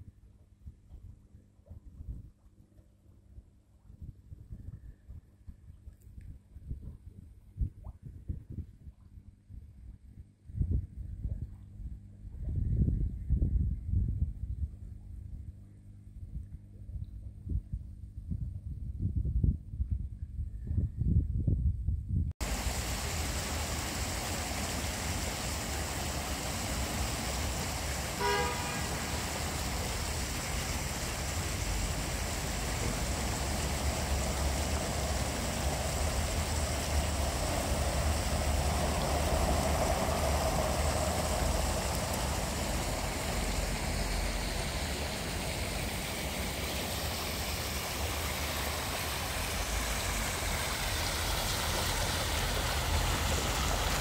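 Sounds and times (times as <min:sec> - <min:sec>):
distant traffic rumble: 0:22.4 - 0:54.0
fountain water splashing: 0:22.4 - 0:54.0
car horn toot: 0:28.2 - 0:29.0.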